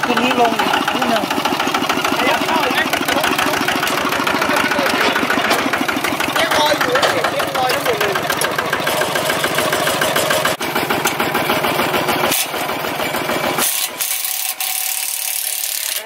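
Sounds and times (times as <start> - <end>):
diesel tractor engine running: 0.0 - 16.0.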